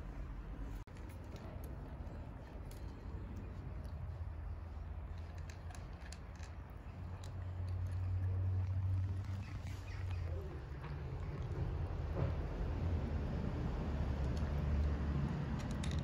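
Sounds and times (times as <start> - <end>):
steady low rumble: 0.0 - 16.0
cats crunching dry kibble: 0.9 - 11.6.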